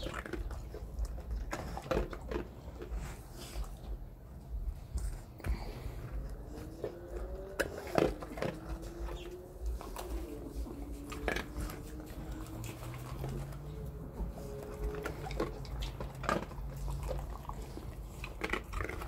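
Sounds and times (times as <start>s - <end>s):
dog jaws snapping and chewing: 0.0s - 4.0s, 6.3s - 19.0s.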